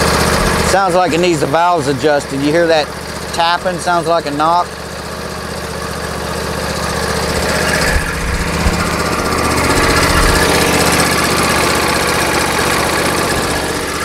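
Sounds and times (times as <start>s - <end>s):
lawn tractor engine tapping: 0.0s - 14.0s.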